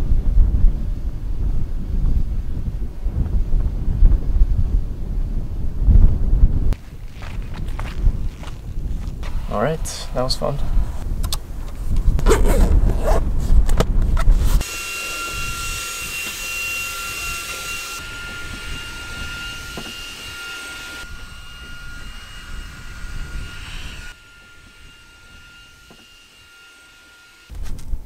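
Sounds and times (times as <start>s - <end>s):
wind buffeting microphone: 0.0s - 14.6s, 15.3s - 25.8s
drone propellers whining: 6.8s - 13.8s, 14.6s - 27.6s.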